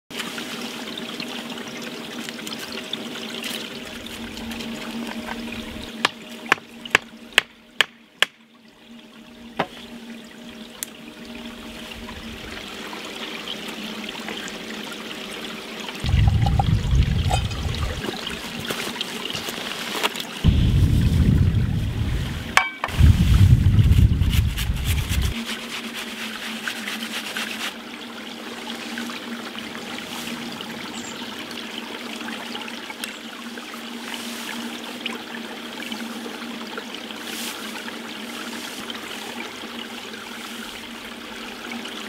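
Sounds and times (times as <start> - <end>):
stream water trickling: 0.1 - 42.0
wind buffeting microphone: 16.0 - 18.8, 20.4 - 25.4.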